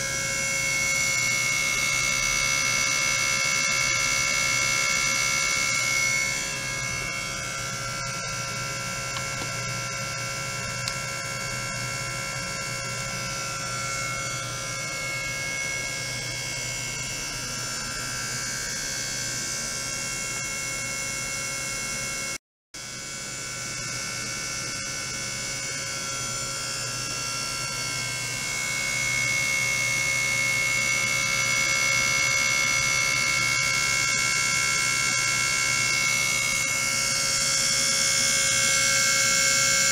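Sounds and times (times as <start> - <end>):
electrical buzzing hum: 0.0 - 39.9
high steady whining tones: 0.0 - 39.9.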